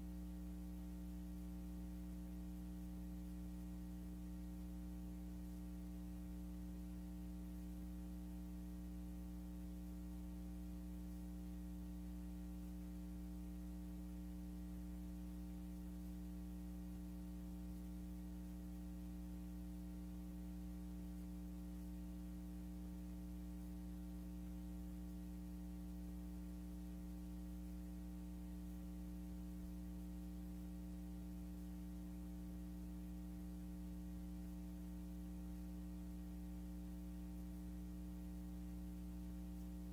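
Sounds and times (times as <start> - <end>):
steady electrical hum: 0.0 - 39.9.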